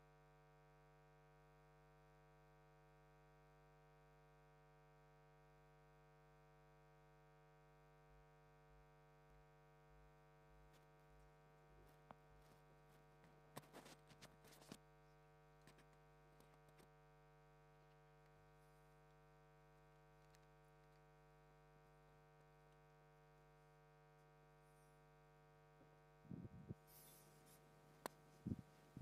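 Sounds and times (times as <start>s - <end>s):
electrical mains hum: 6.2s - 29.0s.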